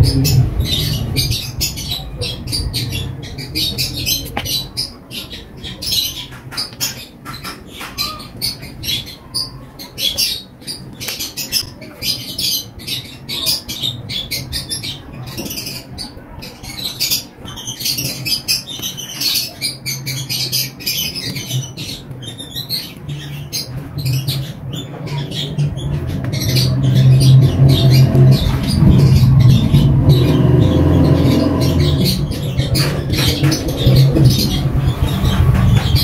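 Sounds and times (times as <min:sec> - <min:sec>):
low hum: 0:00.0 - 0:04.8, 0:24.9 - 0:36.0.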